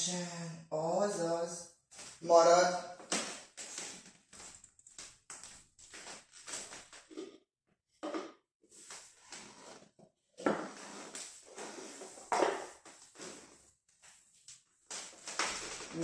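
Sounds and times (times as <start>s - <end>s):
soft footsteps: 3.0s - 7.3s
plastic items sliding on wooden floor: 8.7s - 13.6s.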